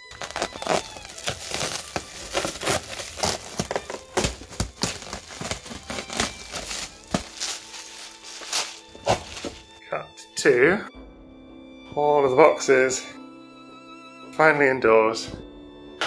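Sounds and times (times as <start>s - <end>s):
plastic wrap crinkling and ripping: 0.0s - 9.7s.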